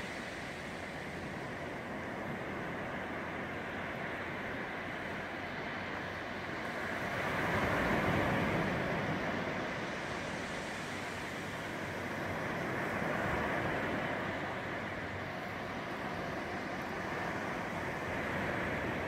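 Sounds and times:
sea waves breaking on shore: 0.0s - 19.0s.

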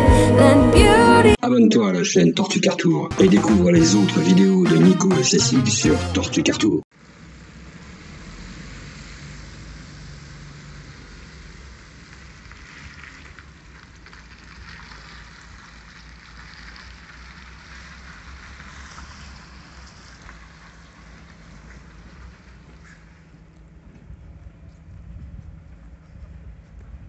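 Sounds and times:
distant heavy vehicle engine: 7.0s - 27.0s.

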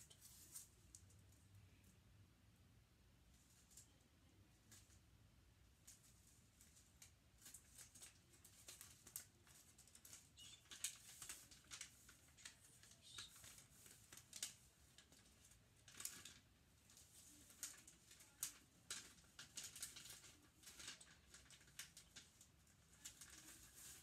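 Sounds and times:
wrapping paper rustling: 0.0s - 1.2s, 5.8s - 24.0s.

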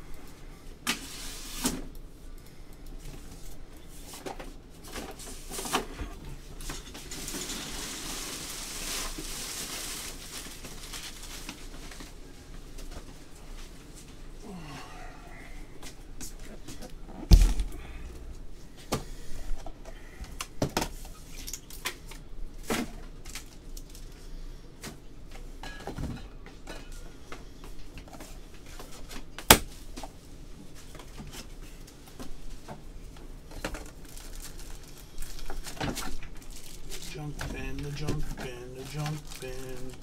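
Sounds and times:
cardboard case thump: 17.3s - 17.8s.

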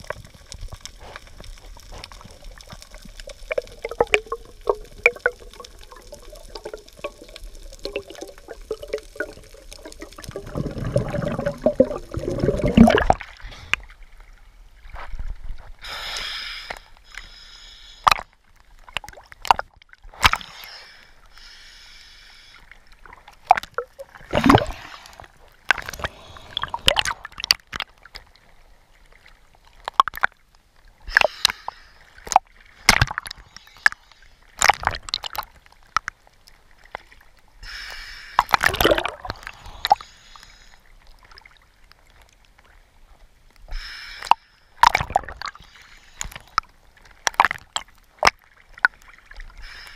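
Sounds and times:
rush of water: 0.0s - 13.8s, 23.0s - 28.0s
water sloshing and gurgling: 0.0s - 15.8s, 17.9s - 21.4s, 22.4s - 49.9s.

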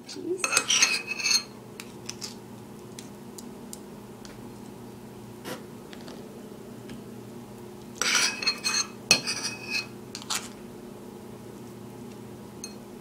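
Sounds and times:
metal spoon clinking ceramic bowl: 8.0s - 9.9s.

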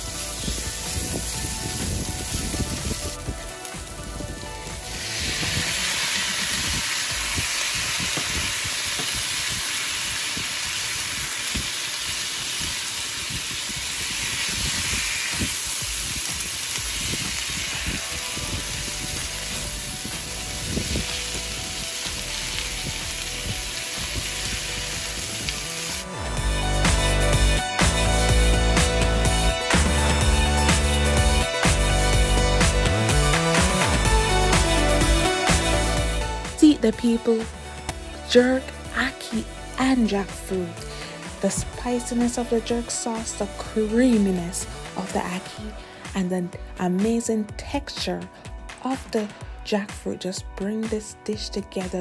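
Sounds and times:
background music: 0.0s - 12.0s, 14.2s - 52.0s
food sizzling in a skillet: 0.0s - 26.2s.

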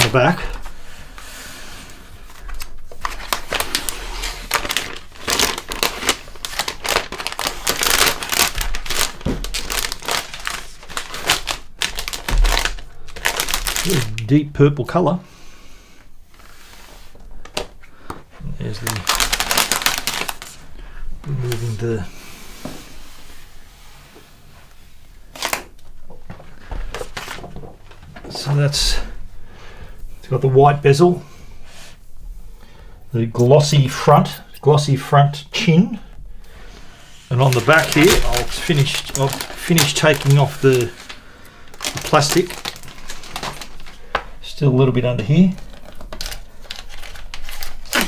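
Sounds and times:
paper wrap peeling and rustling: 0.0s - 0.8s, 2.2s - 14.4s, 18.5s - 20.7s, 21.3s - 22.0s, 25.2s - 28.6s, 37.1s - 48.0s
plastic film crinkling: 0.0s - 0.8s, 2.2s - 14.5s, 16.3s - 22.1s, 25.2s - 29.0s, 36.7s - 48.0s.

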